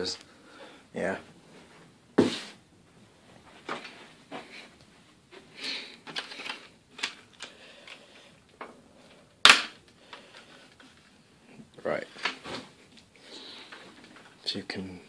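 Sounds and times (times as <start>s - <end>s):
loud sharp snap: 9.4s - 9.8s.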